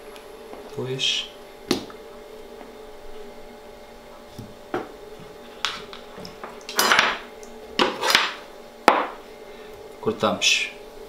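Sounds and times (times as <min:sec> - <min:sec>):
faint hum: 0:00.0 - 0:11.0
metal utensils clattering: 0:06.7 - 0:07.2
utensils knocking on cutting board: 0:07.8 - 0:09.2.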